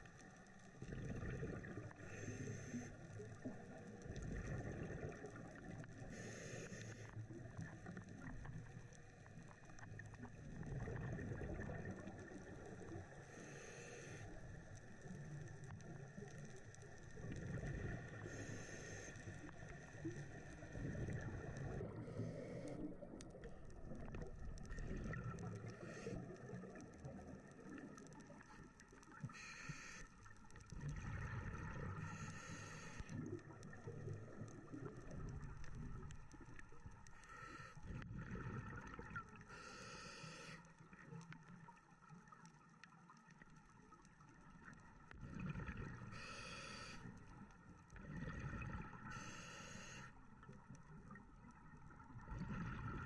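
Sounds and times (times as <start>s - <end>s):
scuba regulator breathing underwater: 1.5s - 3.0s, 6.0s - 7.1s, 13.2s - 14.3s, 18.2s - 19.4s, 21.4s - 23.0s, 29.3s - 30.1s, 31.5s - 33.2s, 37.2s - 38.0s, 39.4s - 40.6s, 45.9s - 47.2s, 49.0s - 50.1s.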